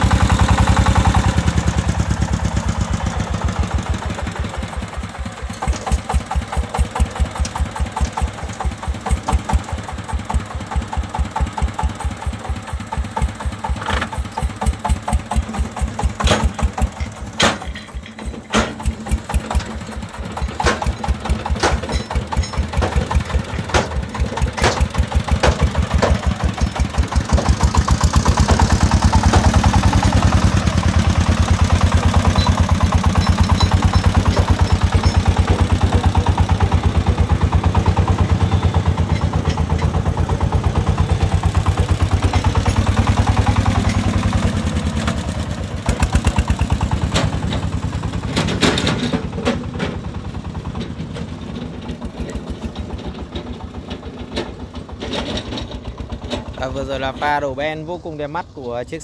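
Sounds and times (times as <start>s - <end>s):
soil unloading: 0.0s - 58.8s
diesel engine chugging: 0.0s - 59.0s
sharp knocks: 13.8s - 19.6s, 20.5s - 30.5s.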